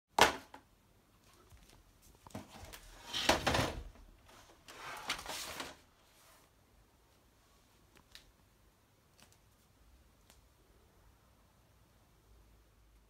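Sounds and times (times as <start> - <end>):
handling scraping and rustling: 1.2 - 6.5.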